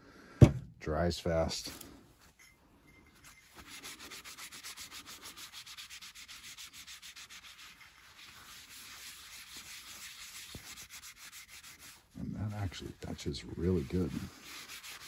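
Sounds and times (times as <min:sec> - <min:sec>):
cloth rubbing on tile: 0:03.2 - 0:15.0.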